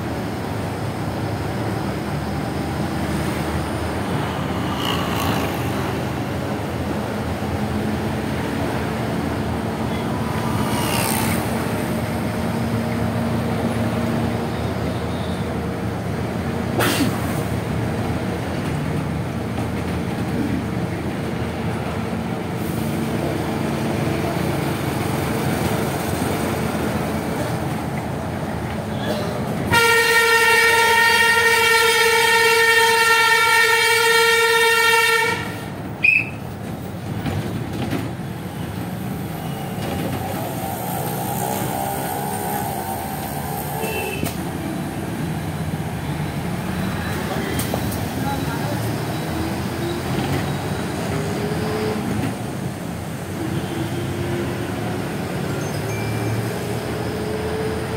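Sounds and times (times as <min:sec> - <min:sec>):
vehicle road noise: 0:00.0 - 0:57.9
loud multi-note horn blaring: 0:29.7 - 0:35.6
faint car horns: 0:29.7 - 0:36.2.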